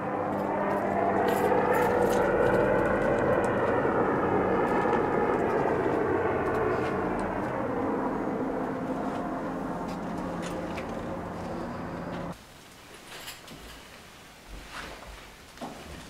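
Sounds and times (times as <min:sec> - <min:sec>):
aircraft drone overhead: 0:00.0 - 0:12.4.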